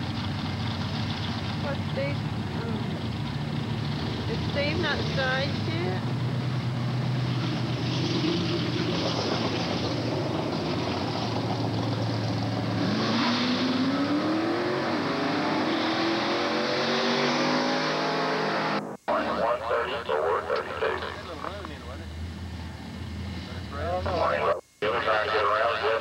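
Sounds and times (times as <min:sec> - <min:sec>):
drag racing car engines accelerating: 0:00.0 - 0:19.3.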